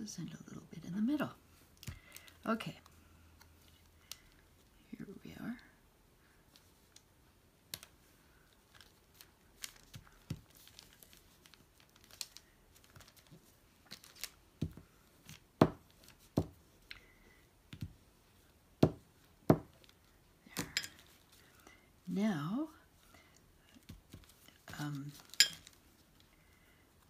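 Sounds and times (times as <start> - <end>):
paper rustling: 7.8 - 16.4.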